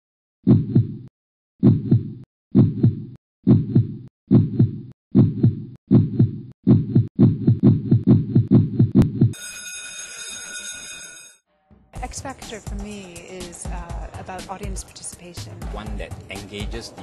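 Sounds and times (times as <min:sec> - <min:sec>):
heartbeat thumps: 0:00.5 - 0:09.4.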